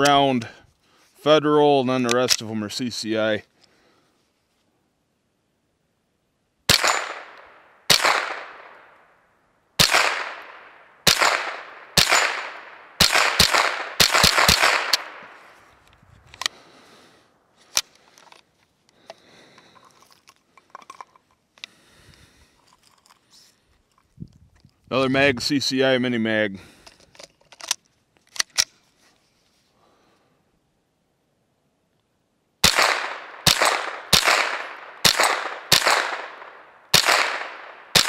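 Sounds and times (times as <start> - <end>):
metallic clicks of rifle handling: 0.0 - 0.6, 2.0 - 2.5, 13.2 - 16.6, 17.6 - 24.8, 26.7 - 29.2
rifle shots with echo: 6.7 - 9.2, 9.8 - 15.6, 32.6 - 38.0.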